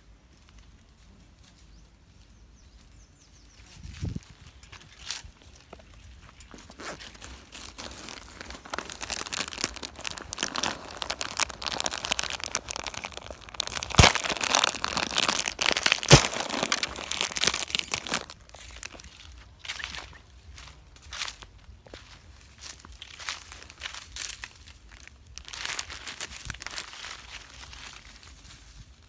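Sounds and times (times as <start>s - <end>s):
backpack rustling: 5.5s - 19.0s.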